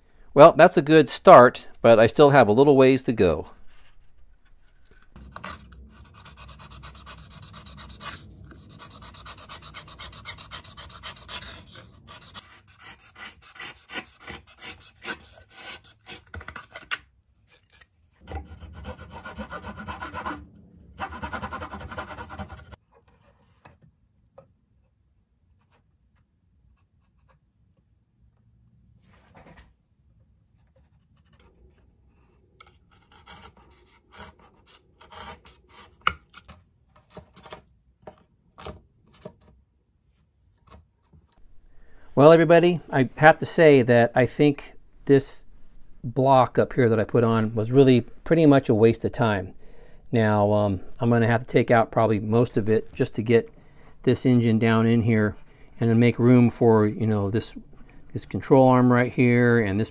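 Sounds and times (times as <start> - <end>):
knife scraping balsa wood: 4.7 - 23.3, 31.0 - 37.6.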